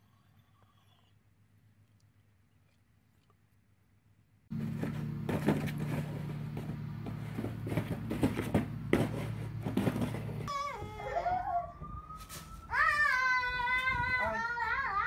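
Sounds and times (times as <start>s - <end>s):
steady low hum: 1.2s - 11.0s
cardboard box knocked and dragged: 4.5s - 10.5s.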